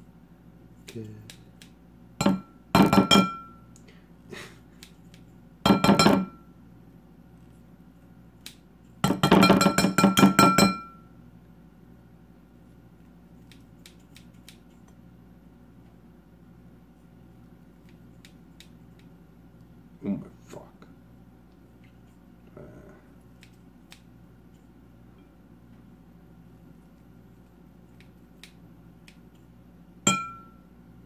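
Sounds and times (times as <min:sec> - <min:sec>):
scissors snipping: 0:13.4 - 0:15.0, 0:23.4 - 0:24.1.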